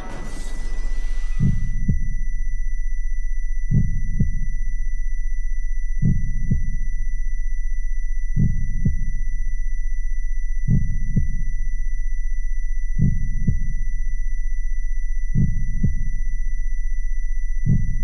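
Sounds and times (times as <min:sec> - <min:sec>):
heartbeat thumps: 0:00.0 - 0:02.2, 0:03.7 - 0:04.6, 0:06.0 - 0:06.9, 0:08.3 - 0:09.2, 0:10.7 - 0:11.5, 0:12.9 - 0:13.8, 0:15.3 - 0:16.2, 0:17.6 - 0:18.0
steady low hum: 0:00.0 - 0:18.0.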